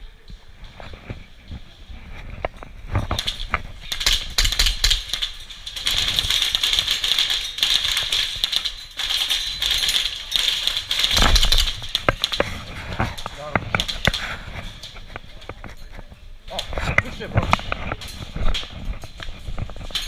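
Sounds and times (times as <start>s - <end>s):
airsoft gunfire rattling: 2.9s - 15.0s.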